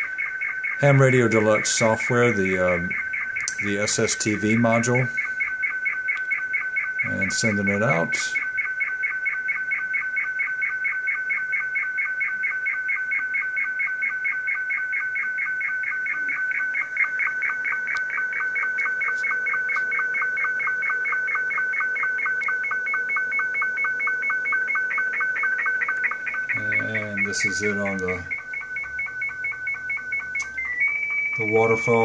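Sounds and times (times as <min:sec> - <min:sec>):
pulsing electronic warbling tone: 0:15.6 - 0:32.0.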